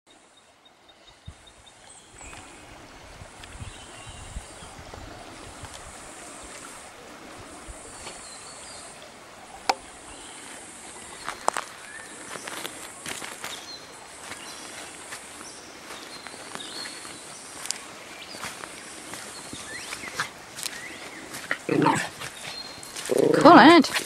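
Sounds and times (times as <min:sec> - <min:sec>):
creek water running: 0:00.1 - 0:24.0.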